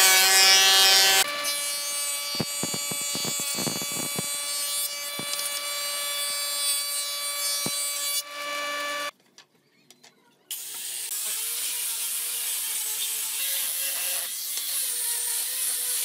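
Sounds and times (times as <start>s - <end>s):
angle grinder sanding: 0.0s - 9.1s
thickness planer whining: 0.0s - 9.1s.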